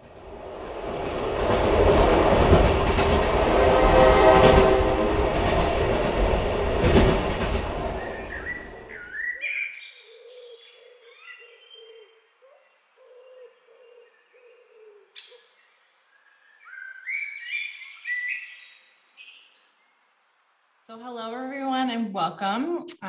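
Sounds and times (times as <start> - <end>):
train rumble: 0.0 - 9.0
birds chirping: 7.6 - 21.4.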